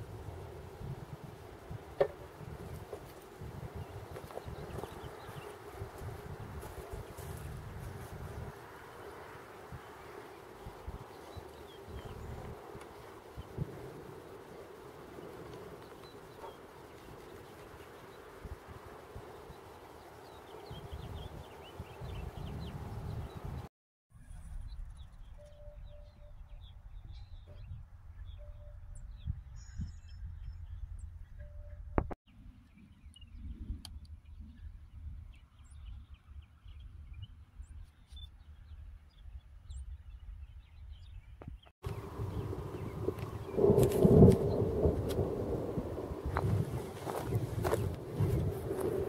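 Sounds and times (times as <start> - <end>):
wind rumble on microphone: 0.0 - 49.0
bird chirping: 24.5 - 31.8.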